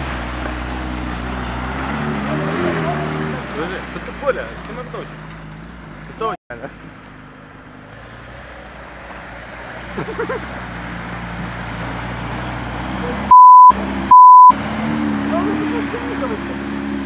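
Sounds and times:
water splashing around wheels: 0.0s - 6.1s, 7.8s - 17.0s
censor bleeps: 13.3s - 14.5s.

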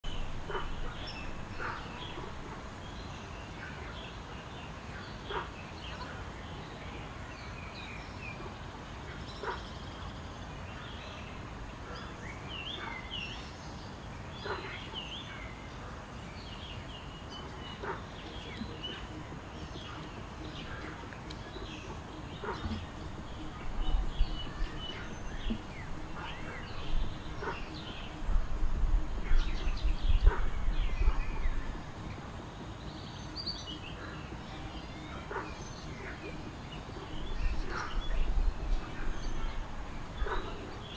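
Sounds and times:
birds chirping and calling: 0.0s - 40.9s
outdoor background hiss: 0.0s - 40.9s.

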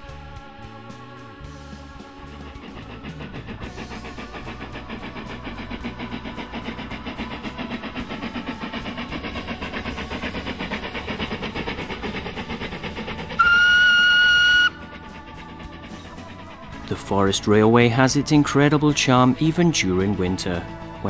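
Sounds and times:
steam locomotive chuffing: 0.2s - 21.0s
steam whistle blast: 13.4s - 14.9s.

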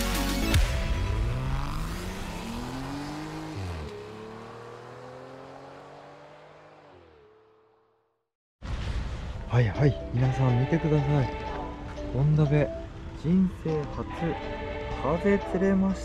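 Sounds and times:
car accelerating on gravel: 0.9s - 7.3s.

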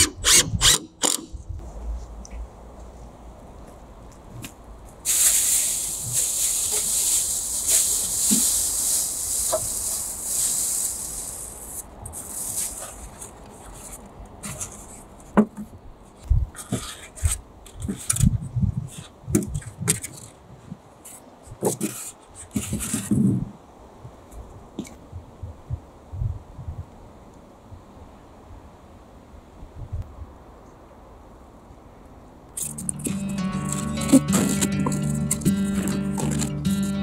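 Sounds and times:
plastic bag rustling: 5.1s - 14.9s, 32.6s - 37.0s.

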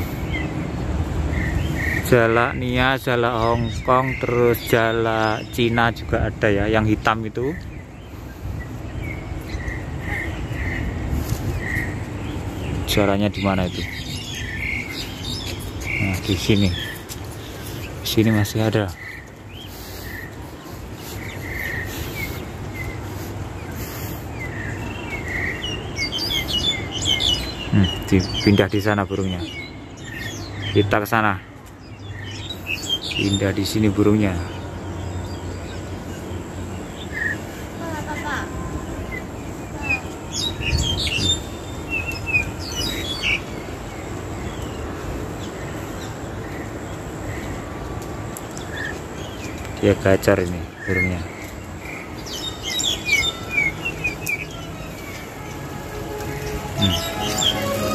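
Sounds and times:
birds chirping and whistling: 7.1s - 30.9s, 39.8s - 44.8s, 50.7s - 57.9s.

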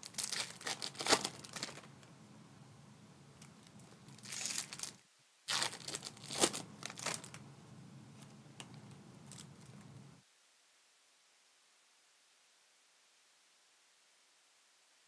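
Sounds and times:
foil wrappers crinkling and tearing: 0.0s - 2.0s, 3.4s - 7.4s, 8.2s - 9.8s.

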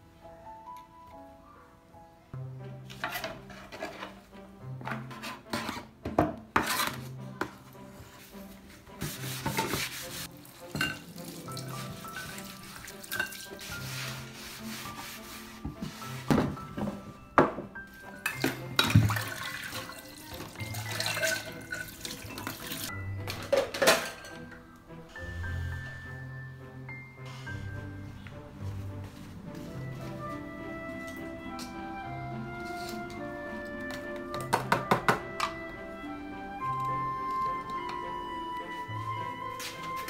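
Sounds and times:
background music: 0.0s - 40.0s
knife scraping cutting board: 4.9s - 5.9s, 6.6s - 7.1s
water running at a sink: 10.3s - 13.6s, 18.4s - 22.9s
utensils knocking and clinking: 10.7s - 11.2s, 16.3s - 24.6s.

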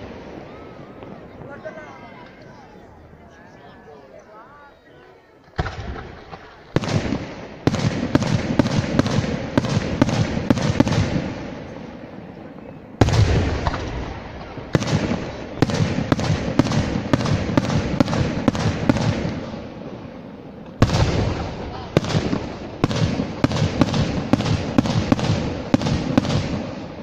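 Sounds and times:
heavy firework boom: 13.0s - 19.6s, 20.8s - 27.0s.

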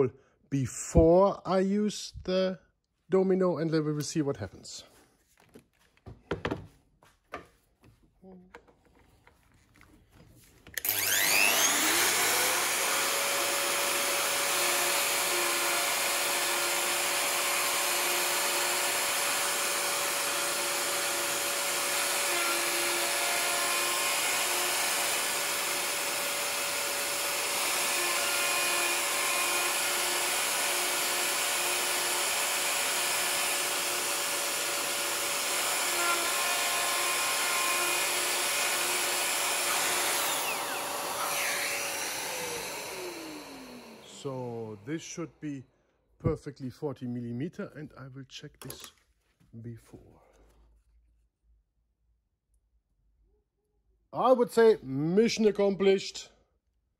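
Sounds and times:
router cutting wood: 10.7s - 44.9s.

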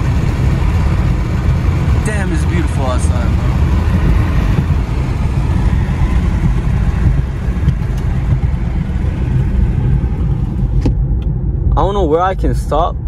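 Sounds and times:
road and engine rumble in car: 0.0s - 13.0s.

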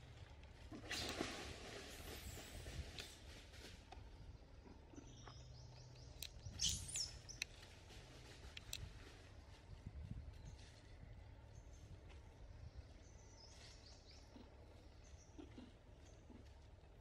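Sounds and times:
thin high-pitched chirps: 6.5s - 7.4s.

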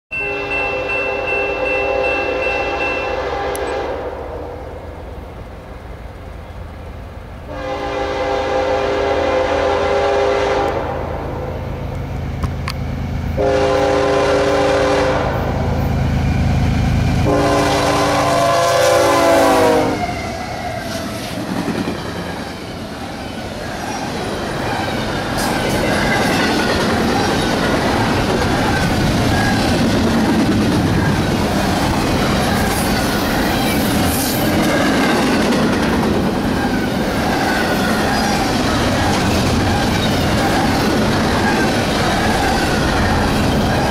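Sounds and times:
locomotive horn blasts: 0.1s - 4.6s, 7.5s - 11.5s, 13.4s - 15.6s, 17.2s - 20.6s
train cars clattering on rails: 20.2s - 43.9s.

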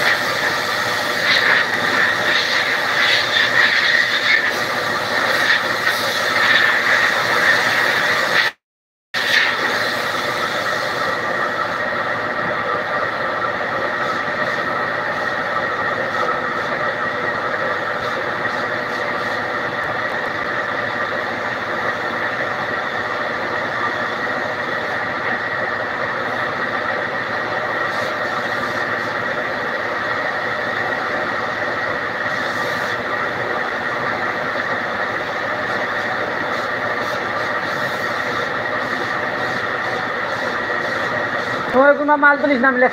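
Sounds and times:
spray gun hissing: 27.9s - 29.2s, 32.3s - 33.1s, 35.2s - 41.9s.

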